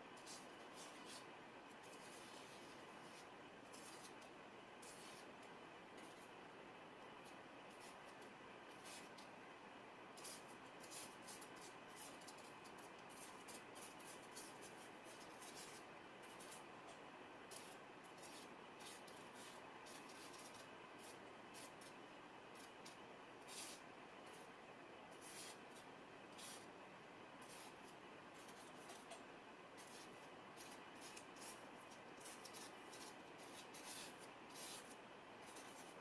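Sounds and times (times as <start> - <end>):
brush strokes on paper: 0.2 - 5.3, 10.2 - 16.6, 17.5 - 21.9, 23.4 - 24.5, 25.2 - 26.7, 27.4 - 29.2, 29.8 - 36.0.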